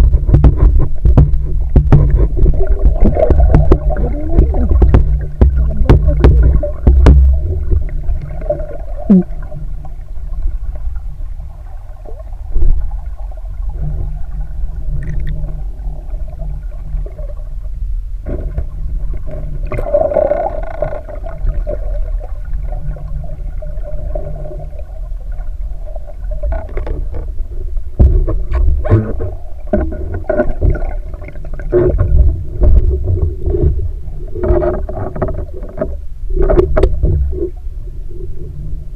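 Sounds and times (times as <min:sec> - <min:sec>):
underwater knocks and clicks: 0:00.0 - 0:11.5, 0:12.1 - 0:37.8
underwater rumble of moving water: 0:00.0 - 0:38.9.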